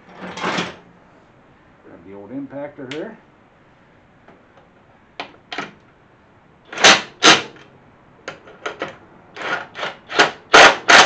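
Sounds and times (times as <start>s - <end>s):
impact wrench bursts: 6.7s - 7.6s, 9.3s - 11.0s.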